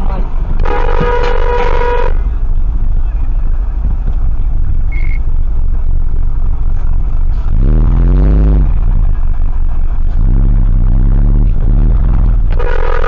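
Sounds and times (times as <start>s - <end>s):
semi-truck rumbling past: 0.0s - 13.0s
truck horn blast: 0.5s - 2.6s, 10.1s - 13.0s
short high beep: 4.9s - 5.3s.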